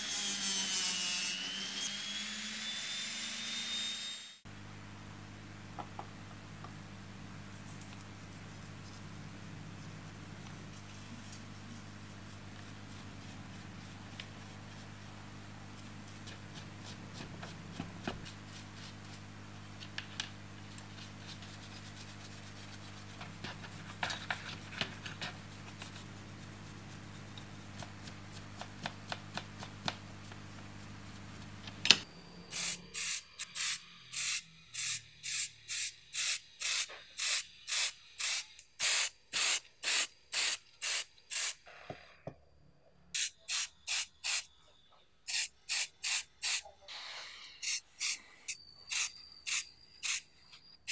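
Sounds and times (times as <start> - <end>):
steady low hum: 4.5 - 36.2
spray paint can hissing: 32.6 - 41.6, 43.2 - 44.5, 45.3 - 46.7, 47.6 - 48.2, 48.9 - 50.2.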